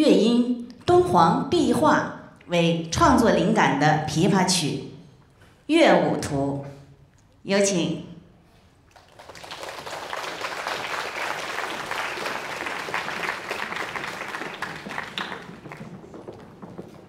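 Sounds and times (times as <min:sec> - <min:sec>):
audience applauding: 0:08.9 - 0:17.0.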